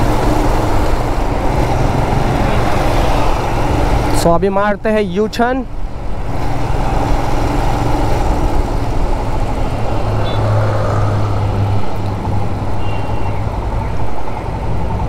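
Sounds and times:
motorcycle engine running: 0.0s - 4.2s
wind and road noise: 0.0s - 15.0s.

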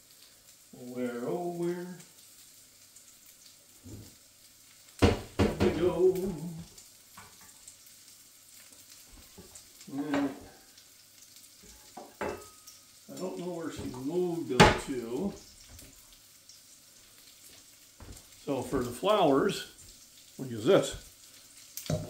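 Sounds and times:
meat sizzling in a skillet: 0.0s - 22.0s
background voice: 5.4s - 6.8s, 9.8s - 10.6s, 13.2s - 15.4s.

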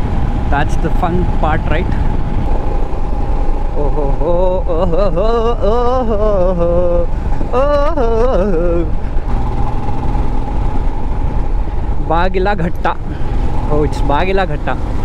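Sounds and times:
motorcycle engine running: 0.0s - 15.0s
wind rumble: 0.0s - 15.0s
man talking: 0.5s - 2.0s, 3.8s - 5.0s, 12.0s - 13.1s, 13.7s - 14.8s.

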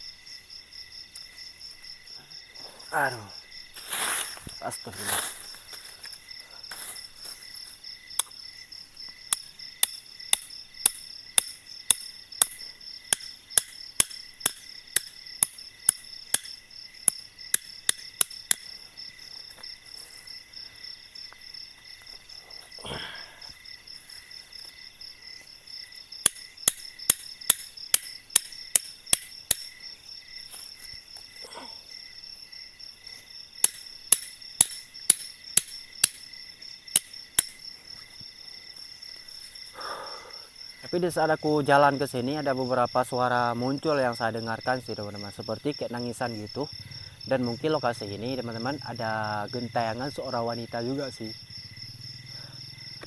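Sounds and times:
night insects chirring: 0.0s - 53.0s
tent stake being hammered: 9.3s - 18.8s, 26.2s - 29.8s, 33.6s - 36.3s, 36.9s - 37.6s.

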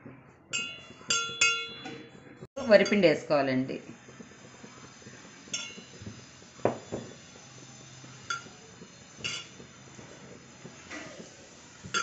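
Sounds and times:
metal bowls clinking and knocking: 0.6s - 3.2s, 5.5s - 7.2s, 9.2s - 9.7s.

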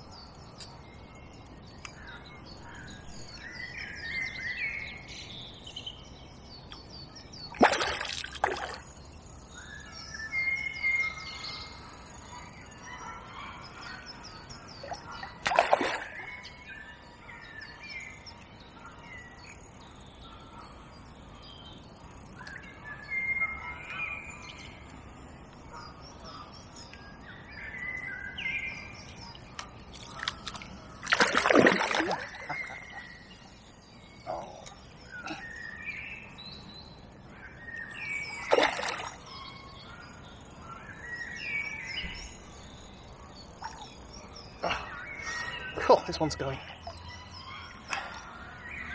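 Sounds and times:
songbirds singing: 0.0s - 48.9s
splashes on water: 7.6s - 8.8s, 15.4s - 16.3s, 29.9s - 32.8s, 38.5s - 39.2s.

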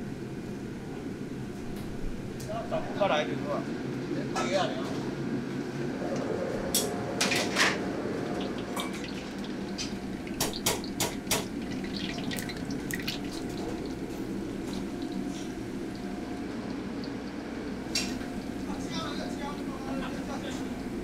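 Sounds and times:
oil bubbling and sizzling: 7.2s - 21.0s.

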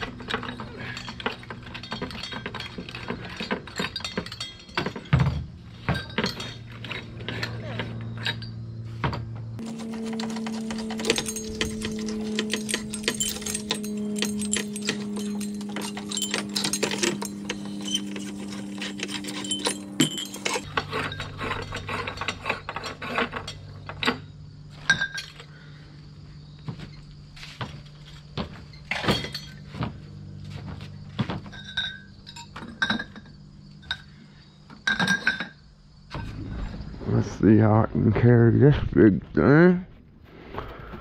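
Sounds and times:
debris clinking and knocking: 0.0s - 25.6s, 26.6s - 30.0s, 31.2s - 34.1s, 34.7s - 36.3s
low hum: 0.0s - 27.3s.

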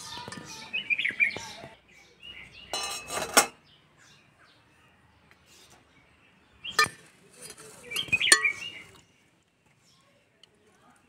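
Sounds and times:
faint birds chirping: 0.0s - 11.0s
metal spoon clinking on pot: 2.7s - 3.6s, 6.8s - 8.6s.

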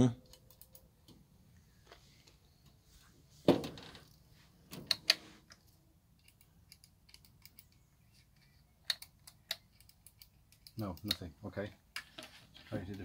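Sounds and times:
sharp clicks: 0.2s - 1.2s, 4.9s - 7.8s, 8.8s - 11.3s.

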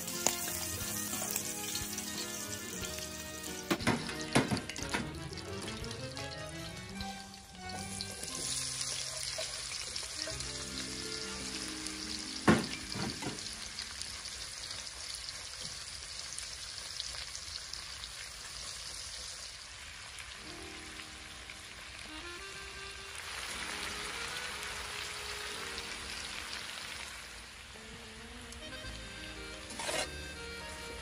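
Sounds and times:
soft background music: 0.0s - 9.4s, 10.0s - 14.0s, 20.4s - 31.0s
onions sizzling in hot oil: 0.0s - 22.2s, 23.0s - 30.8s.

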